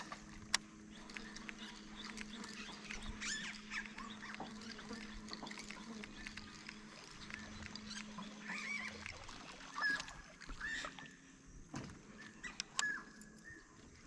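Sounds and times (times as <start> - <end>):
low steady hum: 0.0 - 14.0
water sounds: 0.0 - 14.0
soft knocks of kayak: 11.7 - 12.0.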